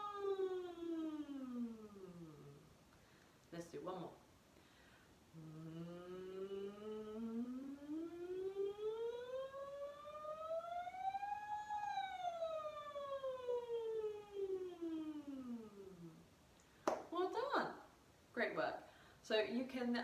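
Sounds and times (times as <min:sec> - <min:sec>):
woman singing vocal siren: 0:00.0 - 0:02.7, 0:05.3 - 0:16.3.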